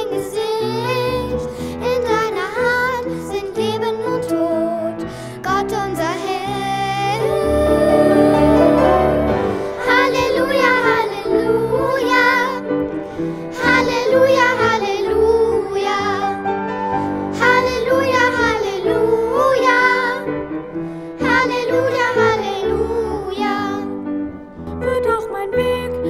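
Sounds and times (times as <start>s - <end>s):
person singing worship song: 5.5s - 12.6s
instrumental accompaniment: 7.2s - 23.0s.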